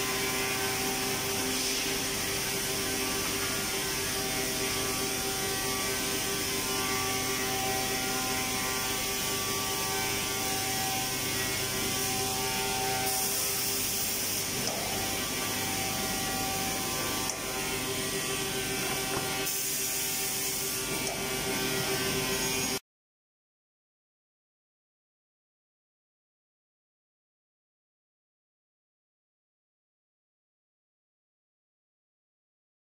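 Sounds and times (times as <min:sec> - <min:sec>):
mid-pitched machine whine: 0:00.0 - 0:22.8
woodworking machinery running: 0:00.0 - 0:22.8.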